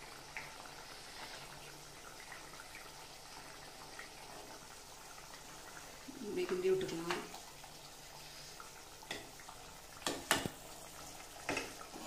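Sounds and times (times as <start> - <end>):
curry simmering in a pan: 0.0 - 12.0.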